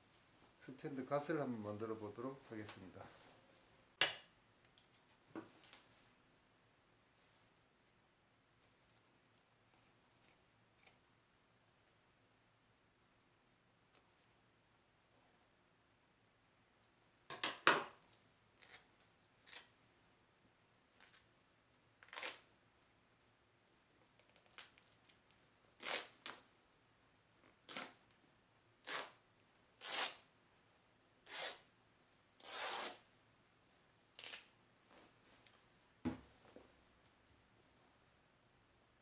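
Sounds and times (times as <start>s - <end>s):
cloth tearing: 18.6s - 19.8s, 22.0s - 22.5s, 25.8s - 26.5s, 27.6s - 28.0s, 28.8s - 29.2s, 29.8s - 30.3s, 31.2s - 31.7s, 32.4s - 33.1s, 34.2s - 34.5s.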